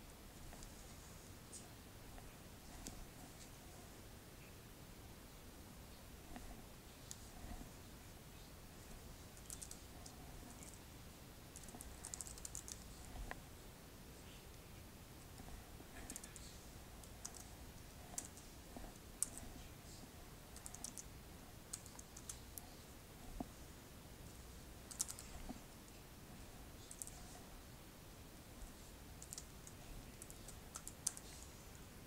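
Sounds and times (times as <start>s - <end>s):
faint keyboard typing: 0.4s - 3.8s, 6.2s - 8.0s, 8.8s - 10.9s, 11.5s - 13.4s, 15.3s - 23.6s, 24.2s - 26.0s, 26.7s - 27.6s, 28.6s - 31.8s.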